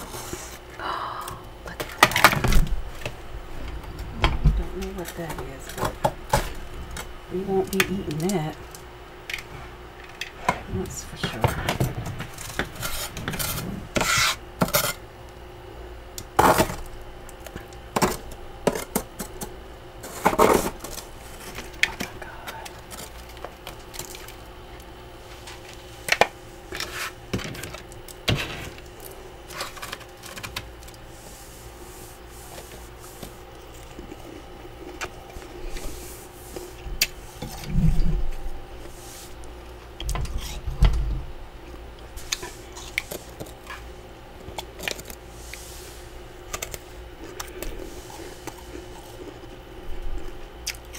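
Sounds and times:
faint steady hum: 0:00.0 - 0:50.9
plastic scraper scraping frost: 0:12.4 - 0:15.0.

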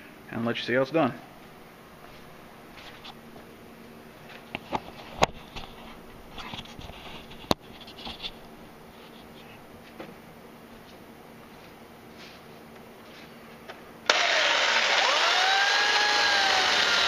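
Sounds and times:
camera handling rustling and scraping: 0:04.4 - 0:08.4.

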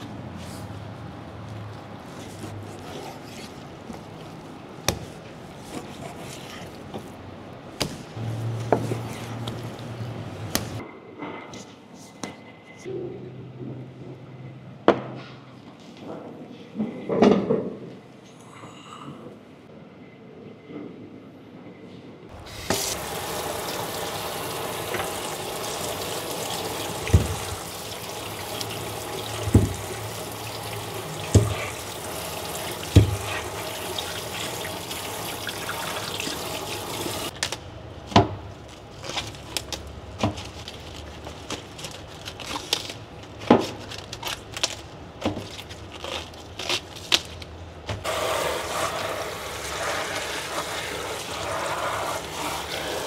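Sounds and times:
tap water running into sink: 0:22.4 - 0:37.3
lettuce leaves crackling: 0:38.6 - 0:47.5.

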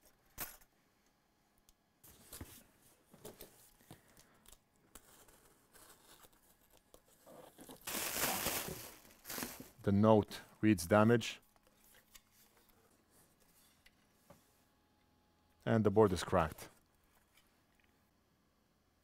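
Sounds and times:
cardboard and plastic crinkling: 0:05.0 - 0:09.8.

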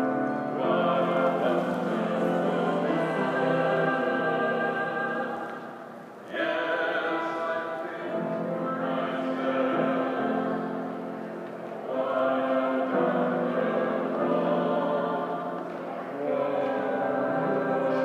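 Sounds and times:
choir singing in harmony: 0:00.0 - 0:18.0.

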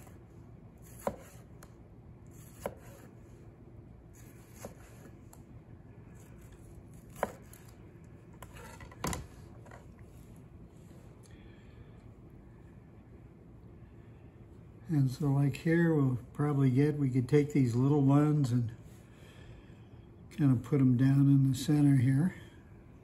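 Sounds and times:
knife slicing tomato: 0:00.8 - 0:03.4, 0:04.1 - 0:05.5, 0:06.1 - 0:10.3.

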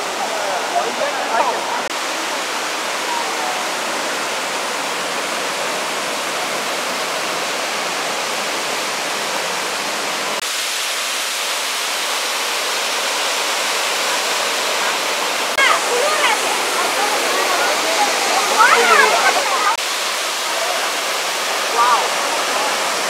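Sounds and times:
waterfall rushing into pools: 0:00.0 - 0:23.0.

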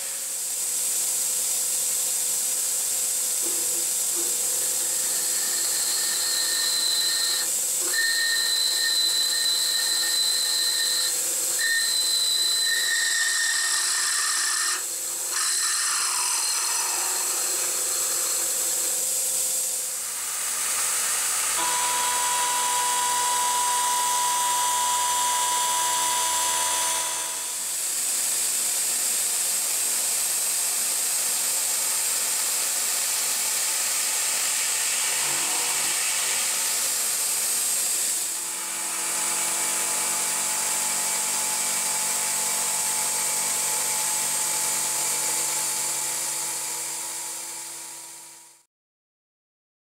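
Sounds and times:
milling machine hiss: 0:00.0 - 0:15.4, 0:16.5 - 0:42.6
pitched machine whine: 0:03.4 - 0:28.0, 0:34.5 - 0:46.5
high cutting tones: 0:21.6 - 0:27.7.

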